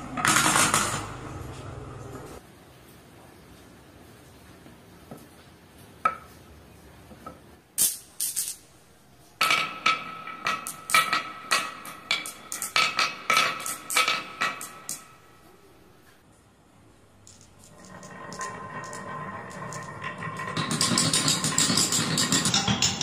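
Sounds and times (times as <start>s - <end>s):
marbles clacking on wood: 9.4s - 15.2s, 17.2s - 23.0s.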